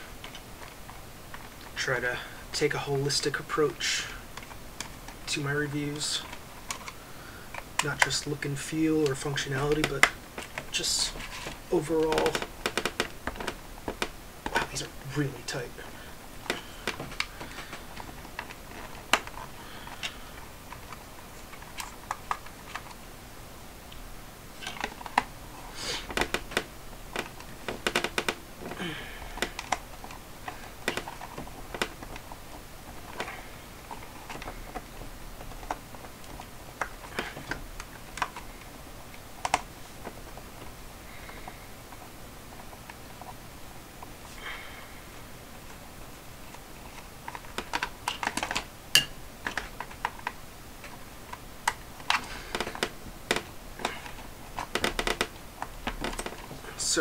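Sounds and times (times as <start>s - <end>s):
clicks and taps on plastic case: 26.0s - 28.8s.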